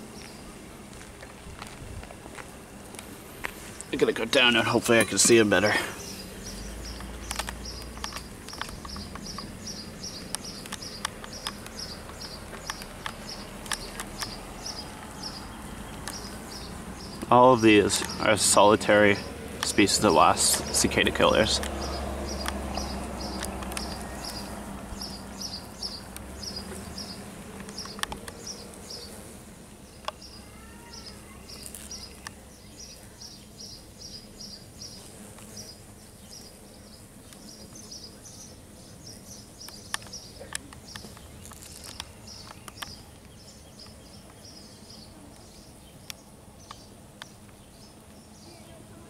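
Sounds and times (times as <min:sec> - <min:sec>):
sharp clicks: 0:06.9 - 0:09.5, 0:10.1 - 0:14.4, 0:21.6 - 0:24.4, 0:27.6 - 0:28.5, 0:39.6 - 0:44.4.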